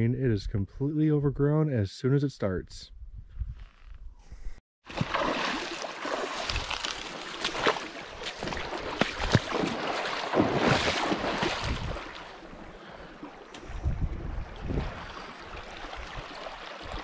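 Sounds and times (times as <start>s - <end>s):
footsteps wading through river: 4.9s - 17.0s
water splashing: 4.9s - 17.0s.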